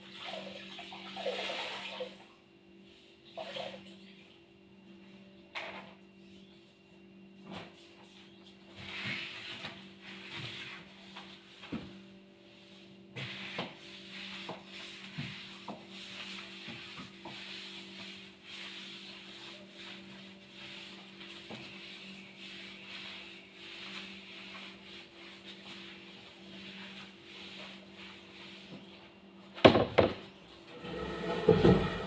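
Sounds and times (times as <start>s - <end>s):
steady low hum: 30.5s - 32.0s
floor tool swishing over wood: 30.7s - 32.0s.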